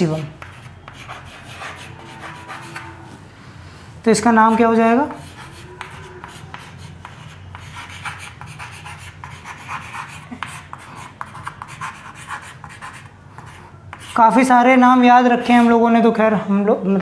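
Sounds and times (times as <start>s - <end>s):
chalk scratching on chalkboard: 0.2s - 2.9s, 4.4s - 14.4s.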